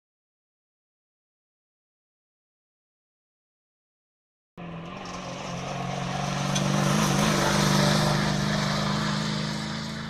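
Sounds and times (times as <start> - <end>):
rally car engine passing: 4.6 - 10.0.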